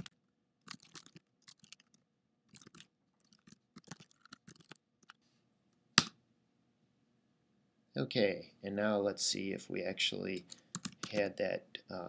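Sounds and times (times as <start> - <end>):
typing on computer keyboard: 0.0 - 5.2, 10.7 - 11.3.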